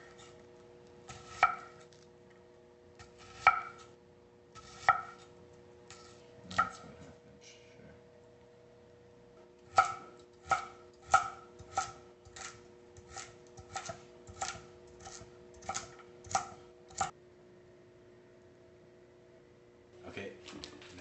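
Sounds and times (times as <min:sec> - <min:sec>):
knife chopping on cutting board: 0:01.1 - 0:01.9, 0:03.0 - 0:03.9, 0:04.6 - 0:05.3, 0:05.9 - 0:06.8, 0:09.7 - 0:17.1.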